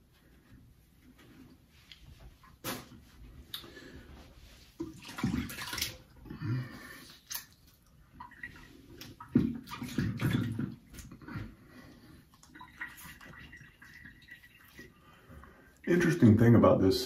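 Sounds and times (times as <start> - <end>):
water splashing in a sink: 4.6 - 16.5.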